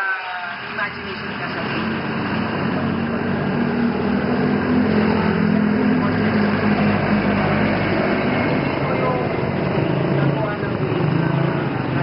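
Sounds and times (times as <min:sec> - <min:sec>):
engine humming: 0:00.6 - 0:12.0.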